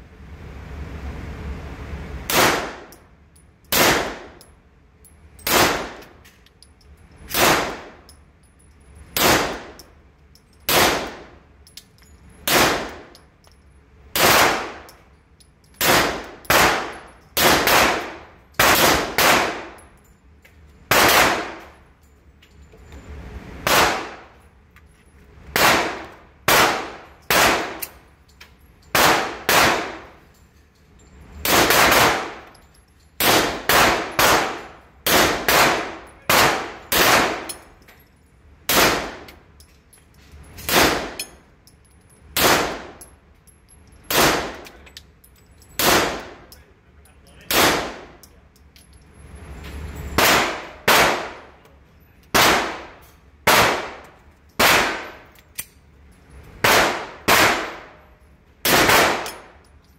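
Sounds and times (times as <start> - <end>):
pistol shots echoing indoors: 15.8 - 19.8, 20.9 - 21.7, 25.5 - 28.0, 29.0 - 30.2, 31.5 - 32.5, 33.2 - 37.6, 47.5 - 48.2, 50.2 - 51.5, 52.3 - 55.3, 56.6 - 58.0, 58.6 - 59.5.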